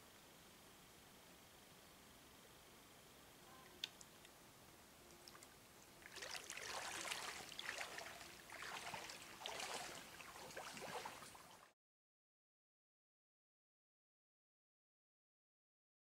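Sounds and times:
splashing in shallow water: 5.2 - 11.7.

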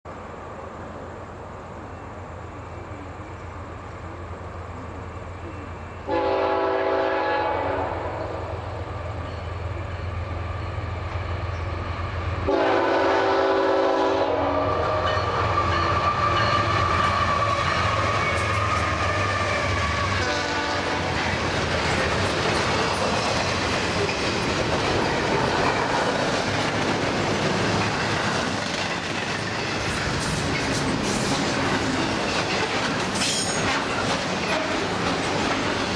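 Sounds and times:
diesel locomotive engines droning: 0.1 - 35.9
train cars clickety-clack and rumble: 0.1 - 35.9
train air horn blasts: 6.0 - 8.7, 12.4 - 21.2.

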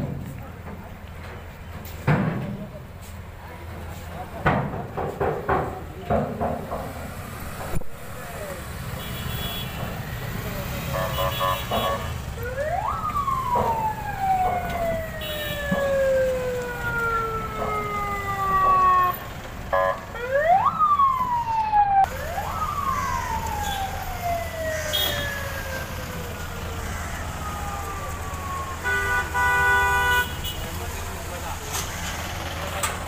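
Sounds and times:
car horn honk: 9.0 - 9.8, 10.8 - 12.2, 28.8 - 30.7
siren wailing: 11.8 - 29.4.

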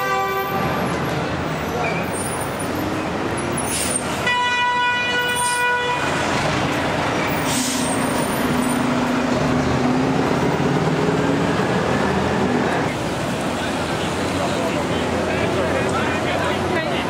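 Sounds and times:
vehicle horn: 0.0 - 0.8, 4.2 - 6.2
street traffic noise: 0.0 - 17.0.

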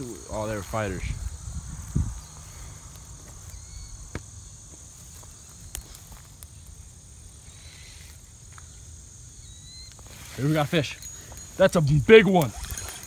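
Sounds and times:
insects chirping: 0.0 - 13.0
wind on microphone: 0.9 - 2.7.

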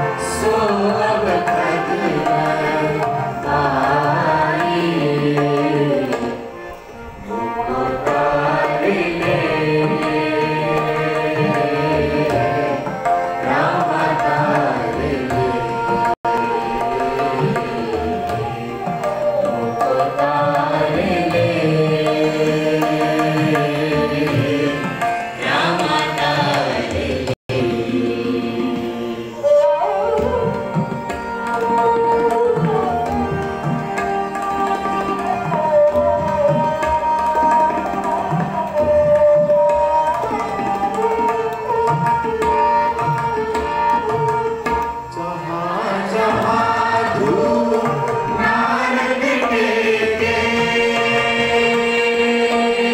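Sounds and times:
hymn singing: 0.0 - 34.2, 45.0 - 52.9
bowed string instrument: 0.0 - 52.9
harmonium: 0.0 - 52.9
tabla drums: 0.0 - 52.9.

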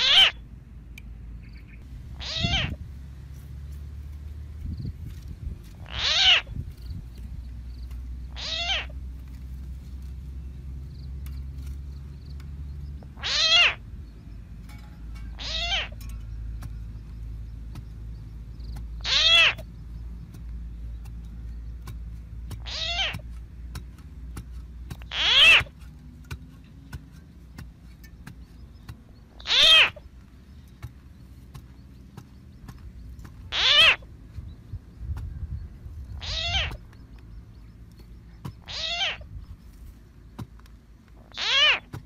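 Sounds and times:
cat meowing: 0.0 - 0.4, 2.2 - 2.8, 5.8 - 6.5, 8.3 - 8.9, 13.2 - 13.8, 15.4 - 16.0, 19.0 - 19.6, 22.6 - 23.2, 25.1 - 25.7, 29.4 - 30.0, 33.5 - 34.0, 36.2 - 36.8, 38.6 - 39.2, 41.3 - 41.9.

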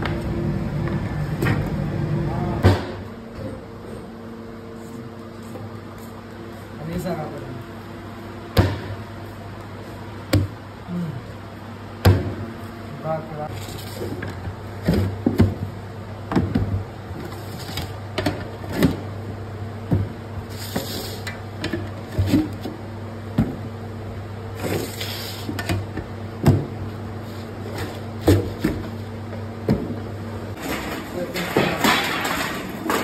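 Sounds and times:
steady low hum: 0.0 - 33.0
metal loaf tins clattering: 30.6 - 33.0.

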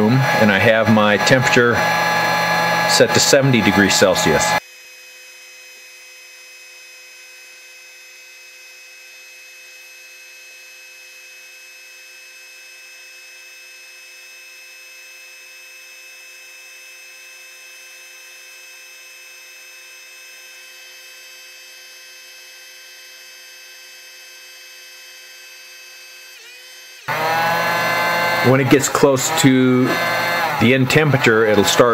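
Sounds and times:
heat gun fan humming: 0.0 - 5.0, 24.1 - 31.9.

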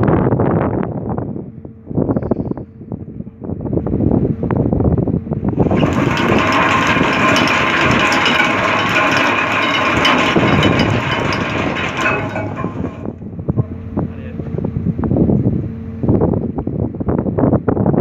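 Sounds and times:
anchor chain rattling: 5.6 - 13.2.

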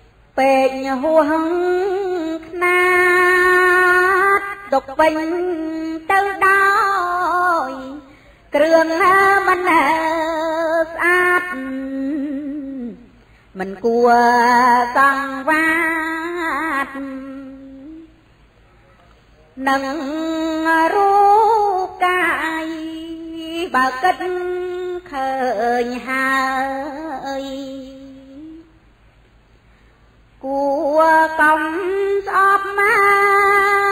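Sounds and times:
woman chanting: 0.3 - 18.2, 19.6 - 28.8, 30.4 - 33.9.

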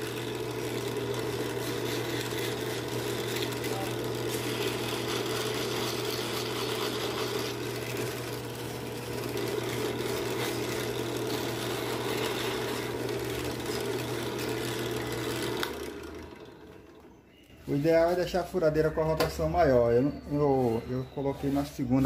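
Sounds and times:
drill press motor running: 0.0 - 17.2
sandpaper on spinning bolt: 4.3 - 7.7.

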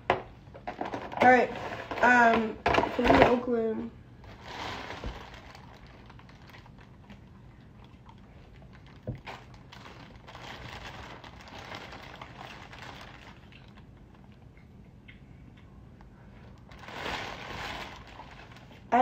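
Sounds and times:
plastic bag rustling: 4.2 - 7.3, 8.1 - 14.3, 16.6 - 19.0.

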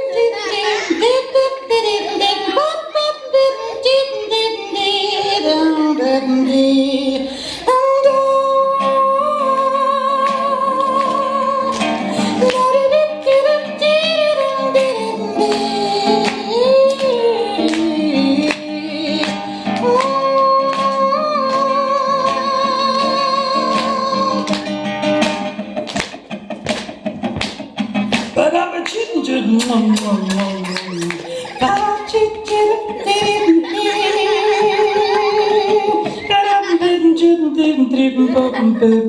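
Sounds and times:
woman singing with vibrato: 0.0 - 24.5, 28.4 - 39.0
acoustic guitar strumming: 8.6 - 37.6.

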